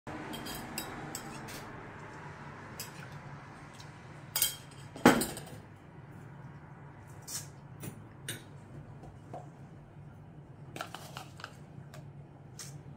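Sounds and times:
metal spoon clinking on steel: 0.2s - 1.6s.

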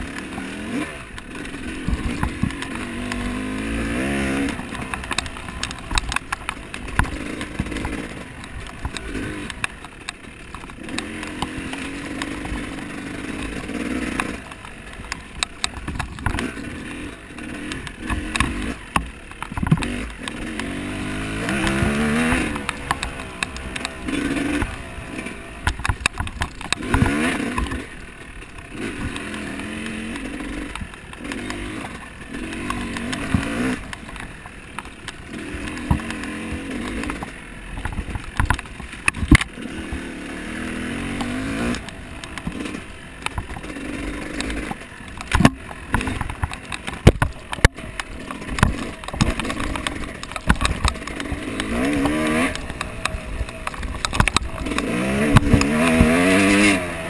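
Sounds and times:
off-road vehicle engine revving: 0.0s - 57.0s
knocks and clatter: 1.1s - 40.1s, 40.9s - 57.0s.

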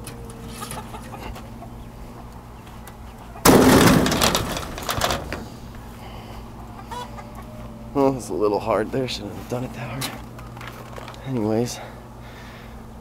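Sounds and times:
door panel crashing down: 3.4s - 5.4s.

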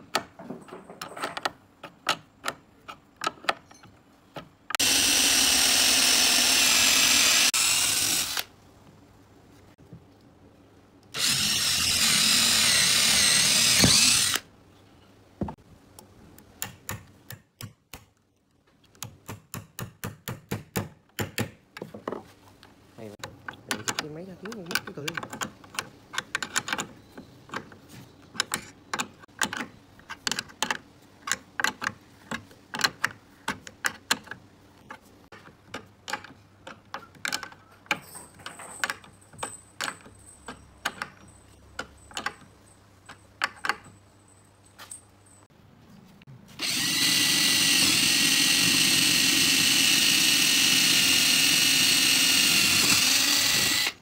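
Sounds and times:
electric drill whining: 4.8s - 8.5s, 11.2s - 14.4s, 46.6s - 54.0s.

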